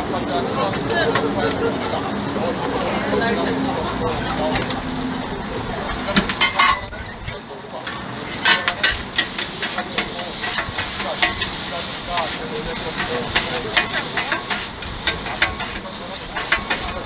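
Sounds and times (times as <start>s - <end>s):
meat sizzling on a griddle: 0.0s - 17.0s
metal scrapers scraping griddle: 5.9s - 17.0s.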